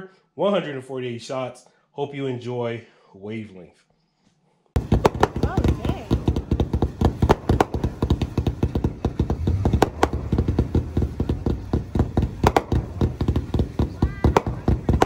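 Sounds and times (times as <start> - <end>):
crackling bursts: 4.8 - 15.0
firework cake firing shots: 4.8 - 15.0
loud firework bangs: 4.8 - 15.0.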